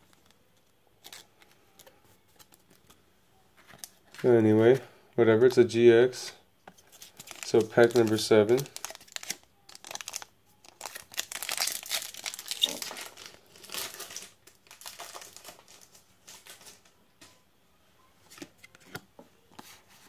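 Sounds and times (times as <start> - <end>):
foil pack tearing and crinkling: 7.0 - 16.6.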